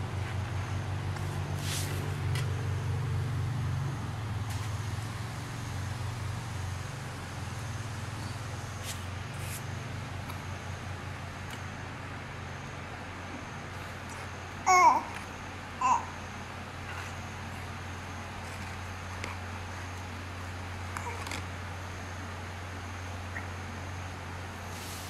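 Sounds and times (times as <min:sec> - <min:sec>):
baby babbling: 0:14.7 - 0:15.2, 0:15.8 - 0:16.2.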